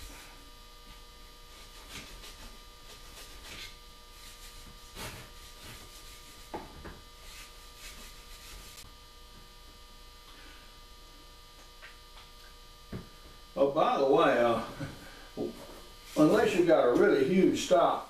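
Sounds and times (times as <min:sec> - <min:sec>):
electrical hum: 0:00.0 - 0:18.0
cloth rubbing wood: 0:01.5 - 0:06.6, 0:07.2 - 0:08.9, 0:15.5 - 0:16.7.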